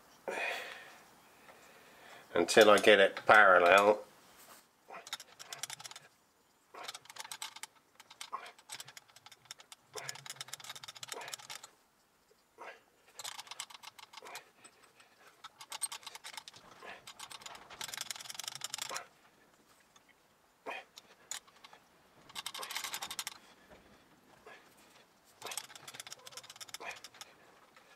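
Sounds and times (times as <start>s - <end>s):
rapid light mechanical clicking: 5.0s - 20.1s, 20.9s - 23.9s, 24.7s - 27.9s.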